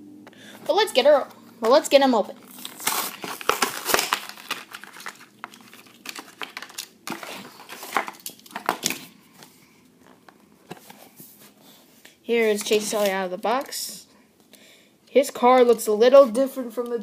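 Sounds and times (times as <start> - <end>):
plastic blister pack crinkling: 2.4 - 9.5.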